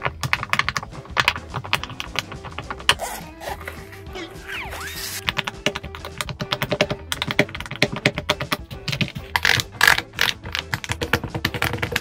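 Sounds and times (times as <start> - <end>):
pop-it toy popping clicks: 4.9 - 12.0.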